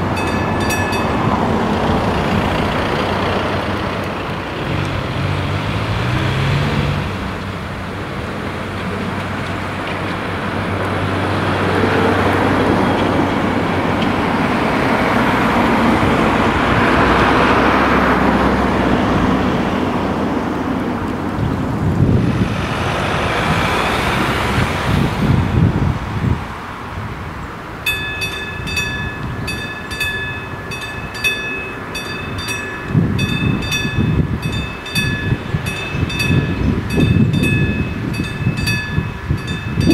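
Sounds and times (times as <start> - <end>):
mechanical warning bell ringing: 0.0 - 1.6, 27.9 - 39.9
road traffic passing: 0.0 - 39.9.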